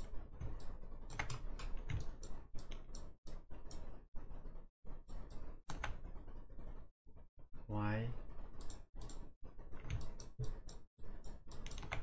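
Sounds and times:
computer keys clicking: 0.0 - 3.9, 8.6 - 12.0.

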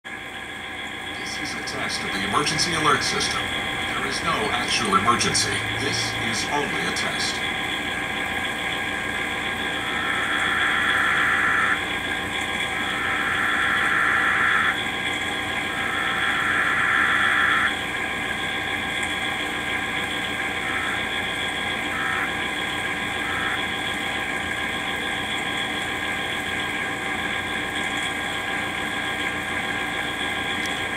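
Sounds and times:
steady hum: 0.1 - 30.9
harsh screechy data tone bursts: 1.2 - 7.5, 9.7 - 14.9, 15.6 - 17.8, 20.6 - 24.0.

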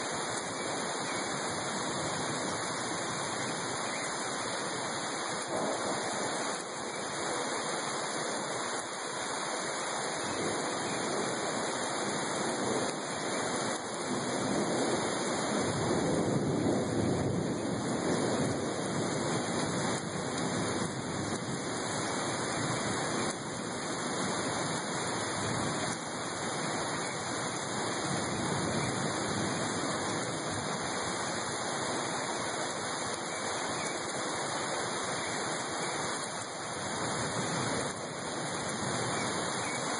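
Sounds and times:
heavy rain pouring: 0.0 - 39.9.

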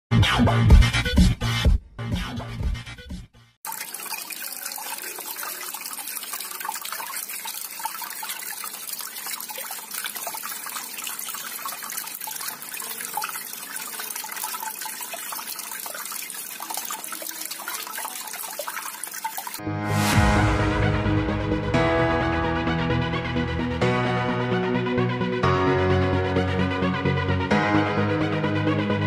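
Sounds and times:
water fountain trickling: 3.6 - 19.6.

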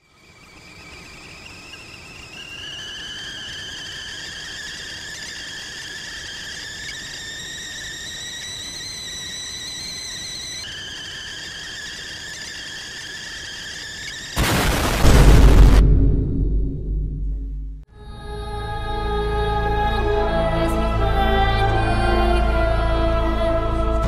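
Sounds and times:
high-pitched squealing tone: 0.0 - 14.6
faint low rumble: 15.0 - 19.9.

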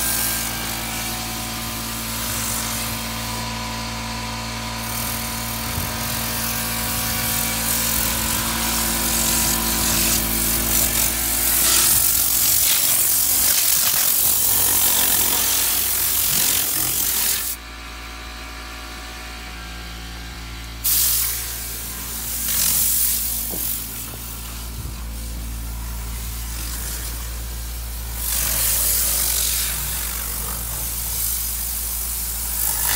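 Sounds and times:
loud hiss: 6.2 - 17.6, 20.8 - 32.9.

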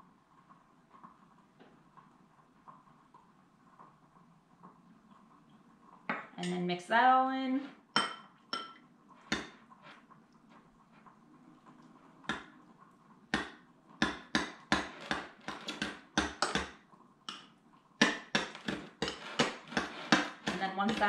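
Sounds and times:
spoon knocking against bowl: 8.0 - 9.5.

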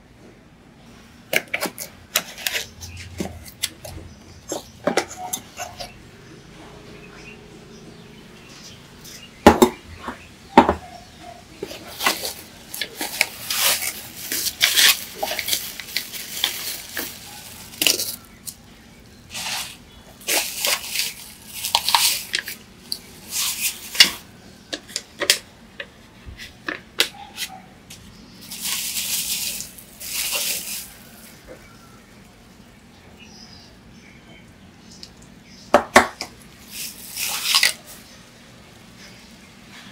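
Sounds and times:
bubble wrap crinkling: 11.6 - 24.8, 28.4 - 31.8, 36.6 - 38.1.

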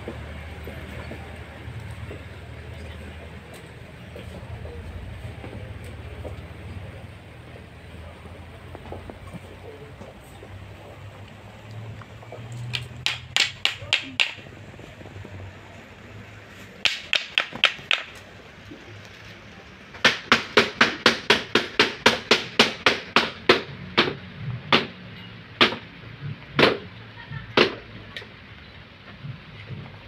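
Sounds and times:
wooden sticks clacking: 12.5 - 14.5, 16.8 - 18.3.

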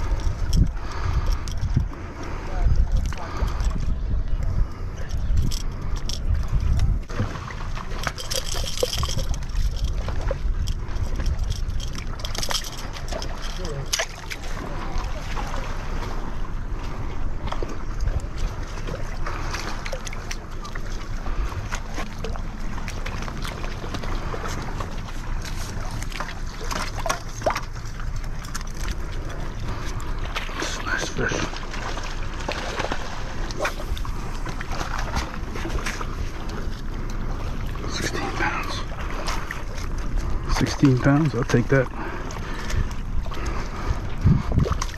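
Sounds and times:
wind buffeting microphone: 0.0 - 13.4, 32.7 - 44.9
water lapping among rocks: 0.0 - 44.9
fish thrashing and splashing: 5.1 - 16.5, 17.3 - 44.9.

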